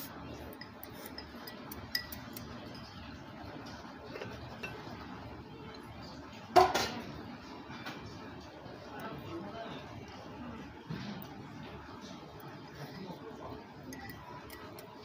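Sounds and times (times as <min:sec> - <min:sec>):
low room murmur: 0:00.0 - 0:15.0
ceramic tableware clinking: 0:00.5 - 0:03.0, 0:04.0 - 0:04.9, 0:13.8 - 0:15.0.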